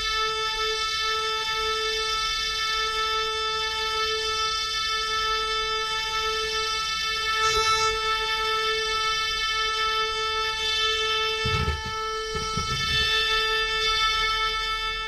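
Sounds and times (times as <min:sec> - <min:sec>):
electronic keyboard organ note: 0:07.2 - 0:15.0
brief knock: 0:11.4 - 0:13.1.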